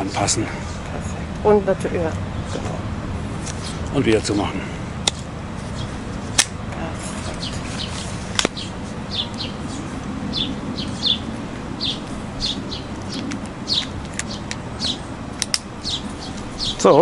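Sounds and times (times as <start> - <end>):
small birds chirping: 0.0 - 17.0
sharp clicks: 12.9 - 16.9.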